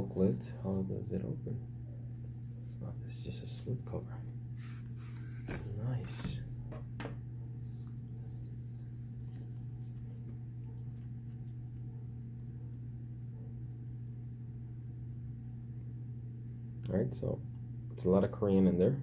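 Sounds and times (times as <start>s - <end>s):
low hum: 0.0s - 18.2s
paper pages turning: 4.6s - 6.3s.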